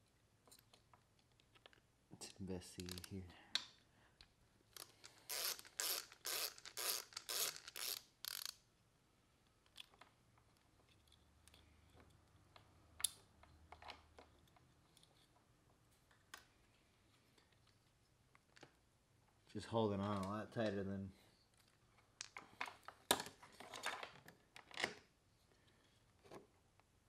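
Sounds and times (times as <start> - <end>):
ratchet wrench clicking: 4.8 - 8.6.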